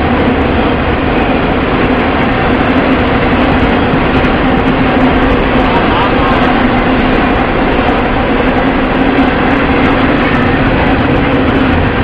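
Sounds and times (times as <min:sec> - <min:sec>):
steel wheels on rail: 0:00.0 - 0:12.0.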